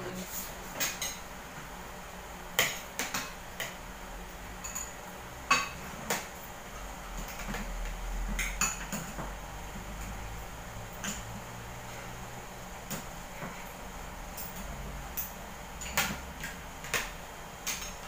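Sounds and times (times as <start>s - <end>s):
cutlery clinking on plates: 4.6s - 6.2s.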